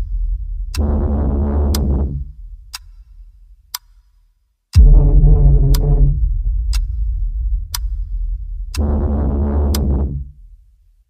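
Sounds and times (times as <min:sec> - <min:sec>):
low synth tones: 0:00.0 - 0:03.4, 0:04.8 - 0:10.8
clock-like ticking: 0:00.0 - 0:10.5
deep hit: 0:04.8 - 0:10.7.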